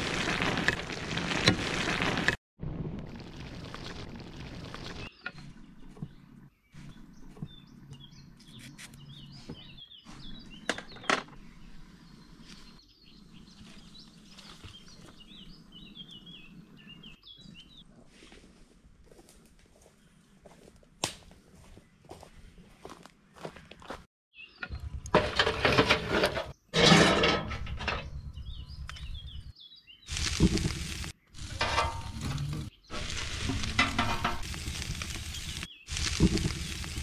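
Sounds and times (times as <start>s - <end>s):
small birds chirping: 3.6s - 18.0s, 21.4s - 25.0s, 28.0s - 31.6s, 34.6s - 37.0s.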